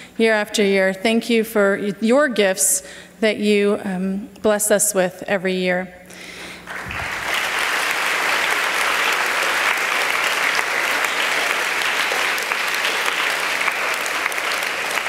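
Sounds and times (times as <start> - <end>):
congregation applauding: 6.6 - 15.0.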